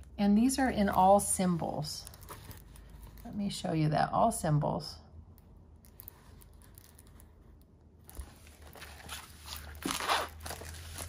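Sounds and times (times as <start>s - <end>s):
plastic sheet crinkling: 8.1s - 11.0s.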